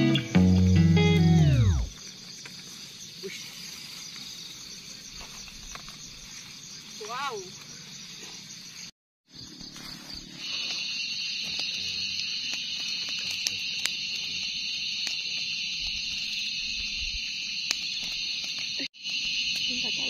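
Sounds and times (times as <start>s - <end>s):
campfire crackling and popping: 0.0s - 7.8s, 10.6s - 20.0s
high insect chorus: 0.0s - 20.0s.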